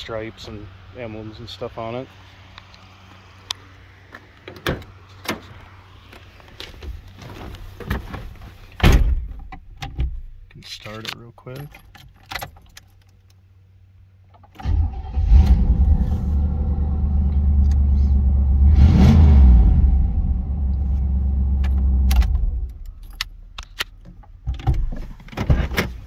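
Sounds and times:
car engine running: 15.3s - 23.7s.

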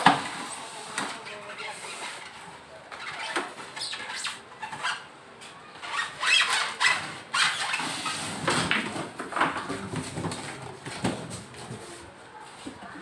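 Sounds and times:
squeaky cardboard rubs: 5.8s - 8.4s.

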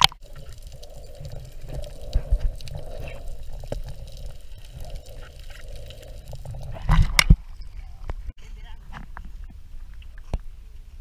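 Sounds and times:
underwater rumble of moving water: 0.0s - 8.3s.

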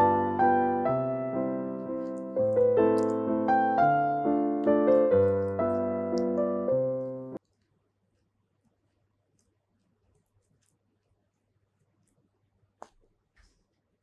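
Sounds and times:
gentle piano melody: 0.0s - 7.4s.

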